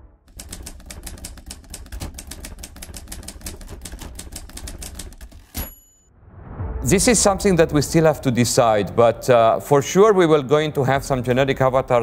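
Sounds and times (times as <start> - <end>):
rapid clicking: 0.3 - 5.6.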